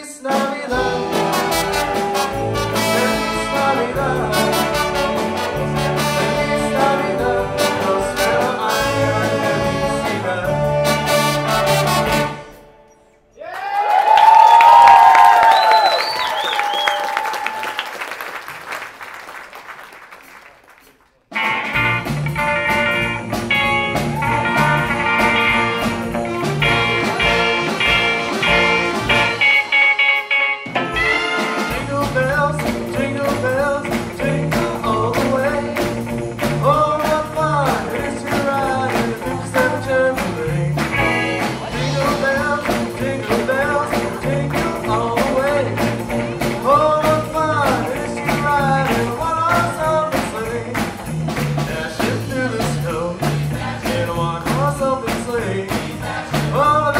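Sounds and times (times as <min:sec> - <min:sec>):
man singing: 0:00.0 - 0:12.4, 0:31.0 - 0:56.9
drums: 0:00.0 - 0:13.4, 0:14.0 - 0:56.9
horn section chords: 0:00.3 - 0:13.3, 0:21.3 - 0:50.8
upright bass: 0:00.7 - 0:12.5, 0:21.4 - 0:29.7, 0:30.7 - 0:56.9
electric guitar: 0:21.3 - 0:53.1.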